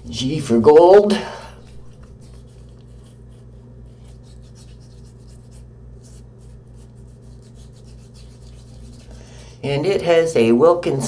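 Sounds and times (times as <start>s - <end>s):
steady low hum: 0.0s - 11.0s
fingertips rubbing beard stubble: 1.6s - 9.3s.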